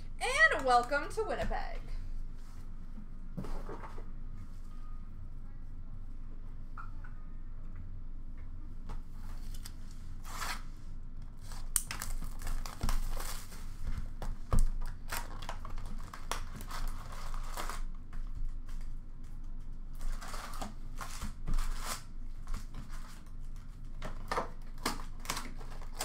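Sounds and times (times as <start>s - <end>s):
shrink wrap crinkling and tearing: 11.4s - 13.8s, 14.6s - 23.1s, 24.1s - 26.0s.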